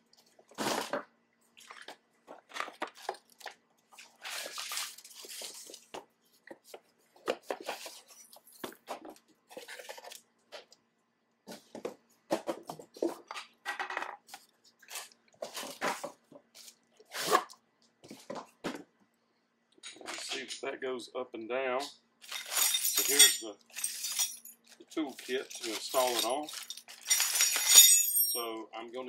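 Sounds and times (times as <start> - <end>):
plastic packaging crinkling: 2.5 - 5.9, 24.6 - 27.4.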